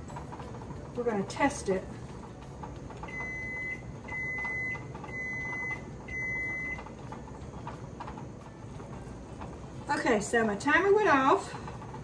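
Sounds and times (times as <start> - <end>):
kitchen timer beeping: 3.1 - 7.0.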